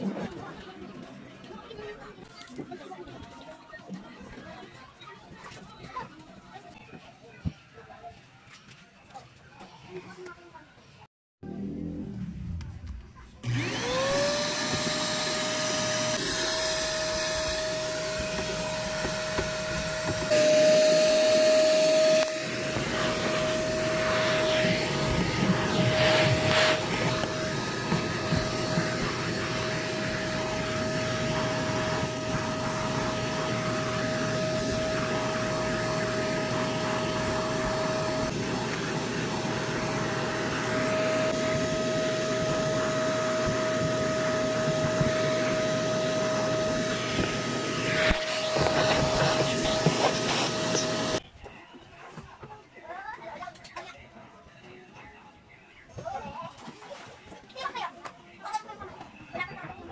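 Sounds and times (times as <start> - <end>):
vacuum cleaner motor whine: 11.5 - 51.2.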